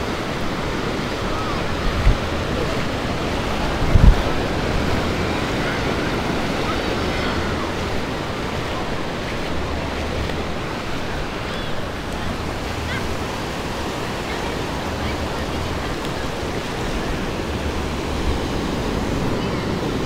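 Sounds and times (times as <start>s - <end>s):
ocean surf washing on beach: 0.0s - 20.0s
wind thumps on microphone: 1.8s - 2.7s, 3.5s - 5.2s.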